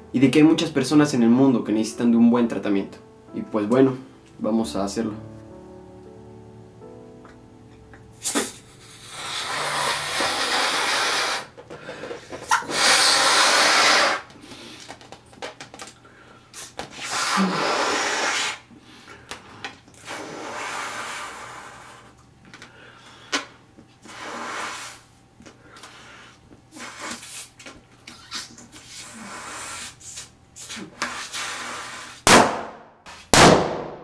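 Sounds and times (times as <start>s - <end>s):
breath blowing into balloon: 8.2s - 14.8s, 16.5s - 19.1s, 20.0s - 22.2s, 24.0s - 25.2s, 25.8s - 32.2s.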